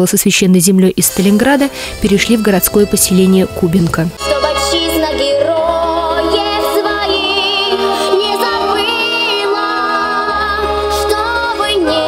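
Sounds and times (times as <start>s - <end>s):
instrumental backing: 1.0s - 12.0s
person singing: 4.2s - 12.0s.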